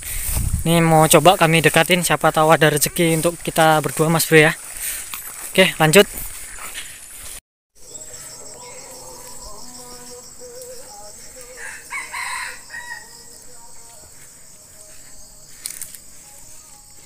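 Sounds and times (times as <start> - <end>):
rooster crowing: 8.2 - 13.5.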